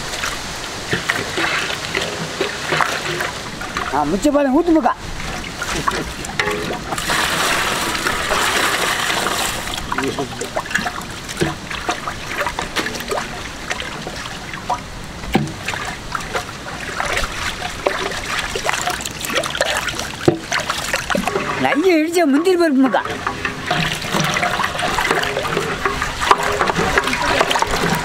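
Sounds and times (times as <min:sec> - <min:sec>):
liquid sloshing in steel pot: 0:00.2 - 0:04.4, 0:05.1 - 0:28.0
churner knocking: 0:05.8 - 0:09.4, 0:18.8 - 0:28.0.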